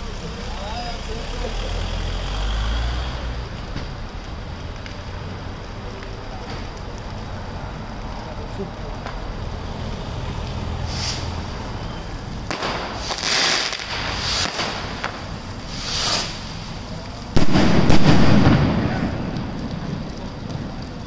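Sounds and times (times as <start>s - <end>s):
firework cracks: 0.0s - 21.0s
firework whooshes: 9.2s - 21.0s
loud firework bang: 12.5s - 16.6s, 17.4s - 19.9s
low rumble: 13.8s - 21.0s.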